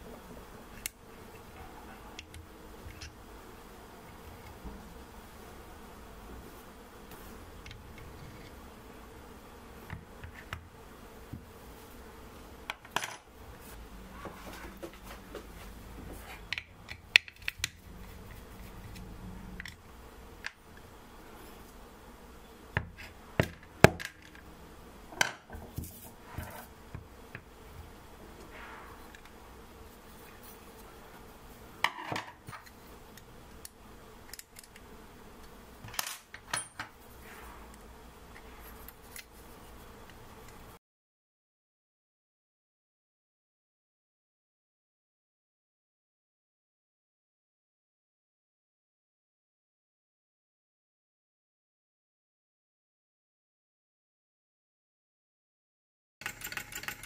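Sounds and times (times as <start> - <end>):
small metal parts clinking: 56.2 - 57.0.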